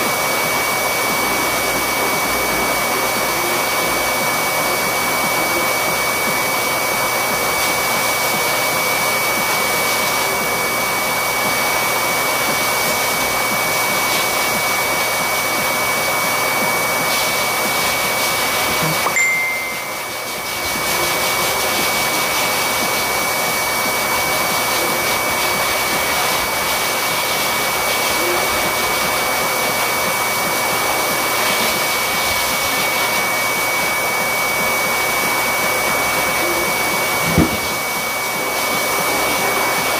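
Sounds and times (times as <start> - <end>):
electric blower whining: 0.0 - 39.9.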